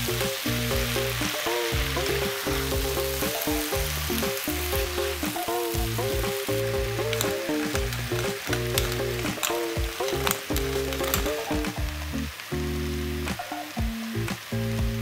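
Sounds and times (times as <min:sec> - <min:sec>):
pepper mill grinding: 0:00.0 - 0:12.4
background music sustained notes: 0:00.0 - 0:15.0
vegetables sizzling in oil: 0:00.0 - 0:15.0
spatula stirring in pan: 0:00.1 - 0:12.1.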